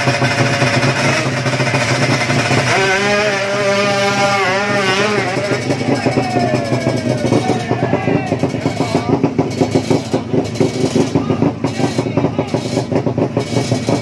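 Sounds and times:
motorcycle engines running: 0:00.0 - 0:14.0
crowd din: 0:00.6 - 0:14.0
voices: 0:02.7 - 0:13.4.

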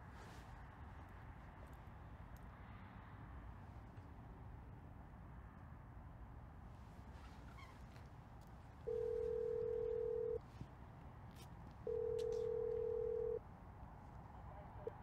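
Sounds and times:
telephone ringback tone: 0:08.9 - 0:10.4, 0:11.9 - 0:13.4.

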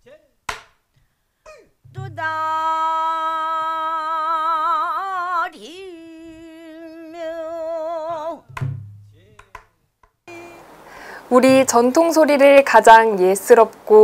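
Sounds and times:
woman singing a held note: 0:10.3 - 0:10.7.

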